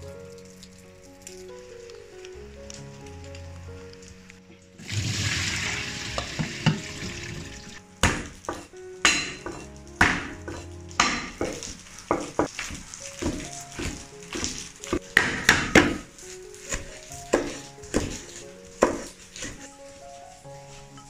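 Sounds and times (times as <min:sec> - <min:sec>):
soft background music: 0:00.0 - 0:21.0
cleaver chopping on wooden board: 0:08.0 - 0:16.1, 0:16.7 - 0:19.5.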